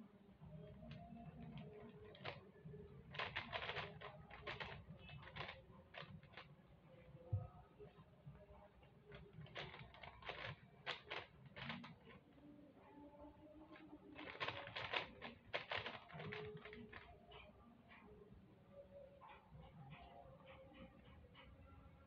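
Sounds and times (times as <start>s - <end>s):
puzzle cube clicking and rattling: 0.6s - 6.6s, 8.9s - 12.3s, 13.7s - 17.2s.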